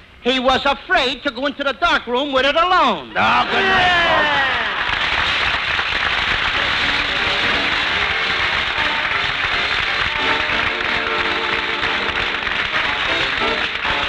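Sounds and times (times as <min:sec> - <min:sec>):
audience applauding: 0:03.2 - 0:14.0
closing theme music: 0:06.4 - 0:14.0.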